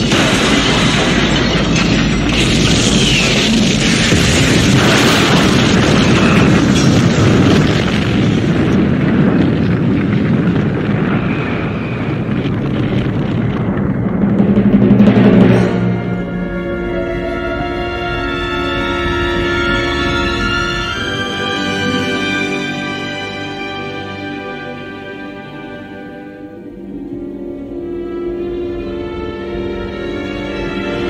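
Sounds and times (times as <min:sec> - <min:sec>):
explosion rumble: 0:00.0 - 0:18.3.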